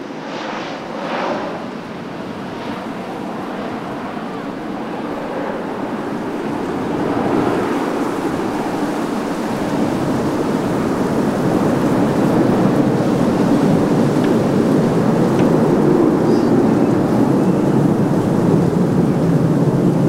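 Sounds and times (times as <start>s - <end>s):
jet engine rumble of landing plane: 0.0s - 20.0s.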